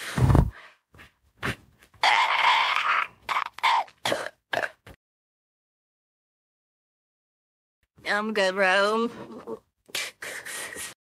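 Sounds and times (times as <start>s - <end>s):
person burping loudly: 2.0s - 4.9s.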